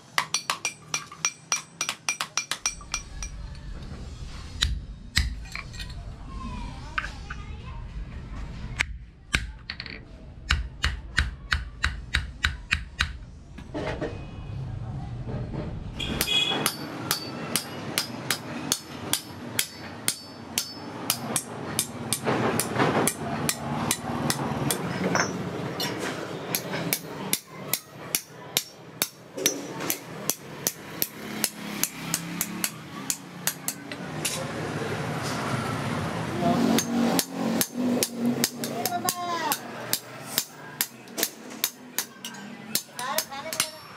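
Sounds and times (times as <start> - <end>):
hammer striking steel on anvil: 0.1 - 3.4, 16.0 - 34.4, 36.6 - 43.9.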